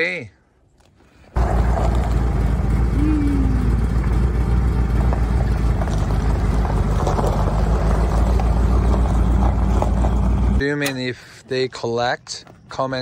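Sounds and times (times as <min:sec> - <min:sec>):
tyres rolling on gravel: 0:01.3 - 0:13.0
car engine running: 0:01.4 - 0:10.6.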